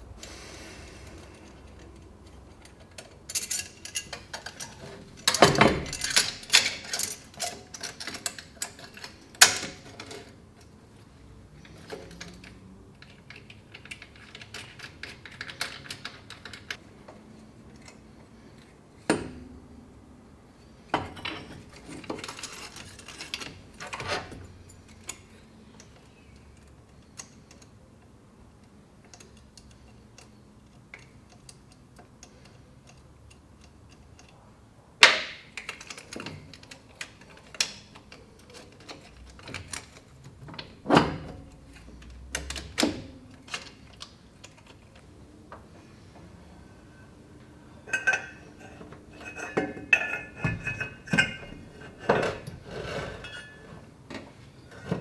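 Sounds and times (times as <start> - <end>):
tools and metal parts clanking: 1.4 - 10.8, 20.7 - 27.7, 35.2 - 45.2, 47.8 - 55.0.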